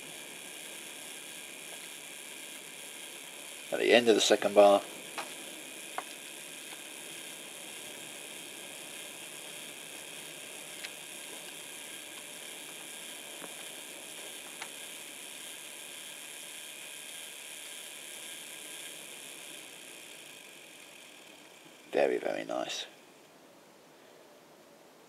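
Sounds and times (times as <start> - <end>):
model train motor whirring: 0.0 - 23.3
faint clicks: 9.4 - 14.9.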